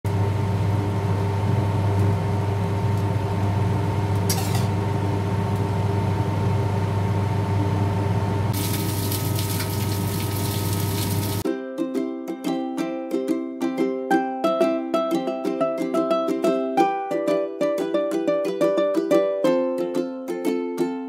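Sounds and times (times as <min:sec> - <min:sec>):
exhaust fan hum: 0:00.1 - 0:11.4
crackling sizzle: 0:08.5 - 0:11.4
water boiling in steamer: 0:08.5 - 0:11.4.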